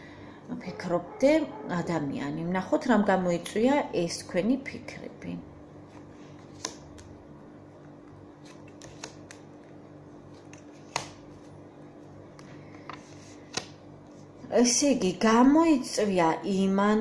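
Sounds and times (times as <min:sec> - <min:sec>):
faint steady hum: 0:00.0 - 0:17.0
cards being shuffled: 0:05.9 - 0:07.2, 0:08.3 - 0:11.6, 0:12.3 - 0:13.8.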